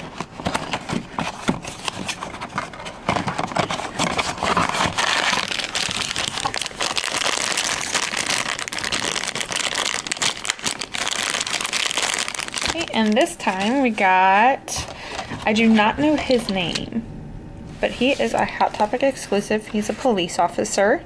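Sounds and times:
foil bag crinkling: 0.0s - 15.6s.

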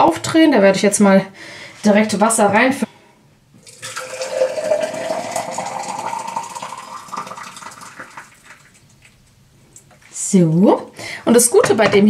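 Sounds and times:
water pouring into bottle: 3.6s - 9.0s.

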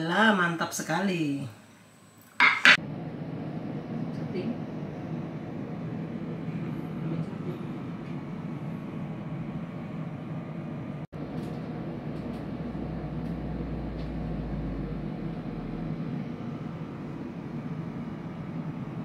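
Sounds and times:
low background hum: 0.0s - 19.0s.

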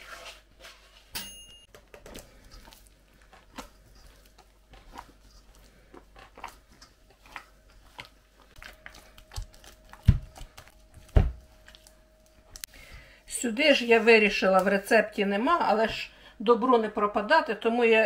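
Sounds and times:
dough squelching: 1.7s - 16.0s.

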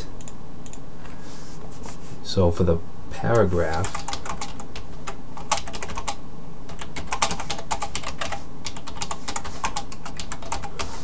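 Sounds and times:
computer keyboard typing: 3.3s - 11.0s.

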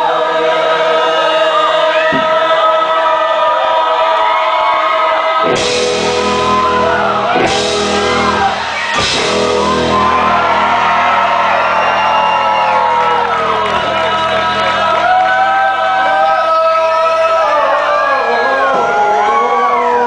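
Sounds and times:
shouted vocals: 0.0s - 20.0s
live band music: 5.5s - 15.2s.

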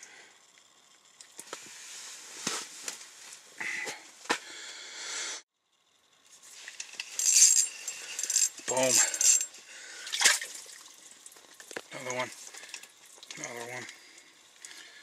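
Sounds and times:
gear and clothing rustling: 6.4s - 9.6s.

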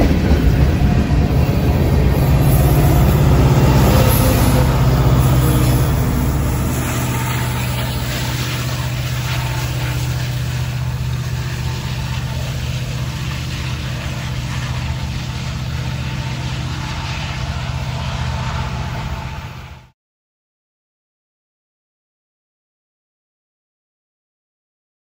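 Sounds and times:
diesel locomotive engine rumble: 0.0s - 20.0s.

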